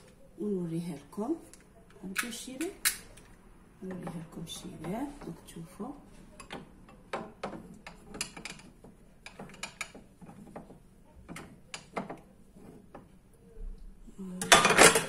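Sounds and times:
objects being handled clicking: 6.4s - 12.3s.

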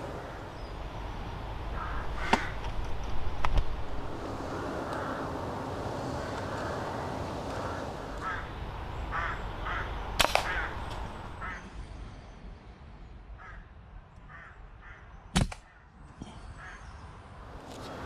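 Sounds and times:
crows cawing: 0.0s - 0.7s, 1.7s - 2.7s, 4.4s - 11.7s, 13.4s - 15.9s, 16.6s - 16.9s
air rifle shot: 10.2s - 10.6s.

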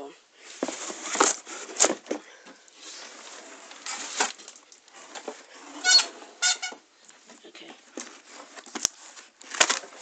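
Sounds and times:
short high squeaks: 5.8s - 6.8s
soft rustling: 7.0s - 10.0s.

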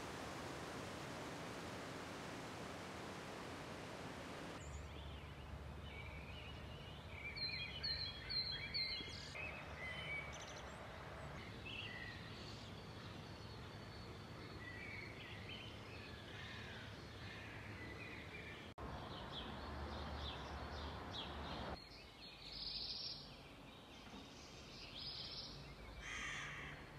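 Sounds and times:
steady rushing hiss: 0.0s - 4.6s
small birds calling: 4.3s - 26.9s.

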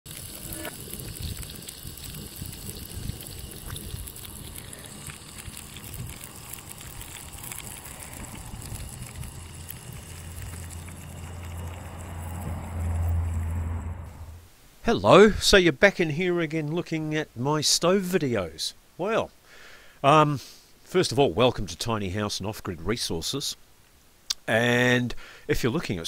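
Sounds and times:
wind buffeting microphone: 0.8s - 12.7s.

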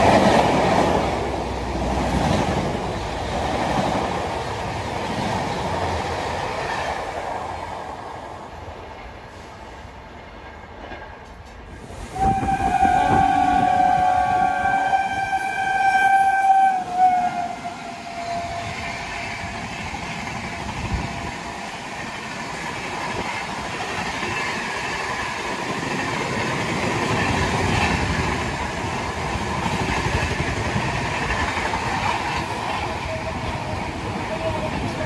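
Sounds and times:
train coaches rushing by: 0.0s - 35.0s
train horn: 12.1s - 19.7s.

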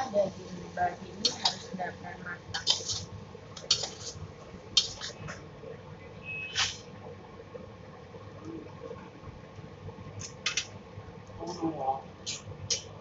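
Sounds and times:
metal spoon scraping a wok: 2.5s - 4.2s.

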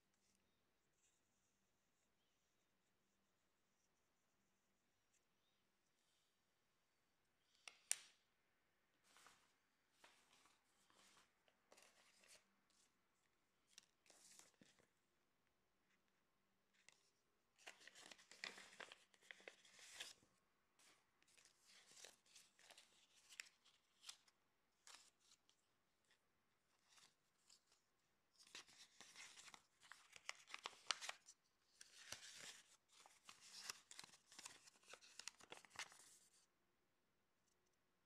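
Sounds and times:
paper rustling and crinkling: 9.0s - 12.9s, 13.7s - 14.9s, 16.8s - 20.2s, 20.8s - 26.2s, 26.8s - 36.5s.

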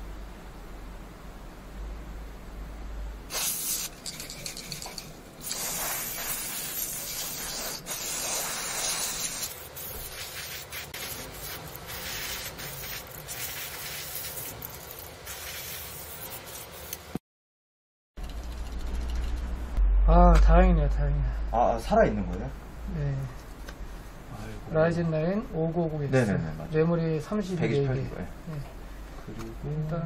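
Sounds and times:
aerosol spray can hissing: 3.3s - 17.1s.

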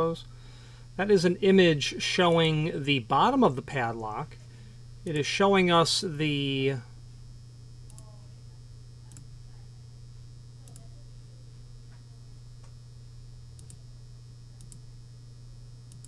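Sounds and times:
low electrical hum: 0.0s - 16.0s
computer mouse clicks: 10.6s - 10.9s, 13.6s - 13.8s, 14.6s - 14.8s.

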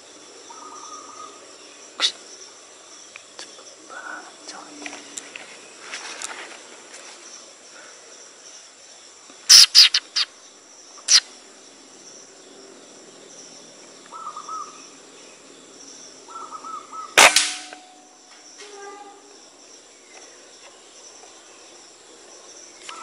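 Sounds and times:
insects trilling: 0.0s - 23.0s
bird chirps: 9.5s - 10.3s
loud sharp crack: 17.2s - 18.0s.

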